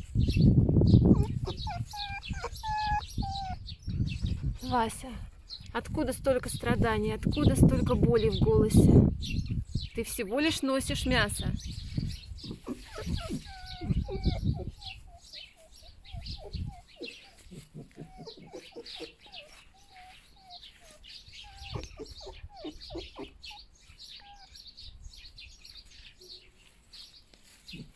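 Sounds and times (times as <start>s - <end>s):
fox whining: 0.9s - 4.6s, 12.2s - 24.7s.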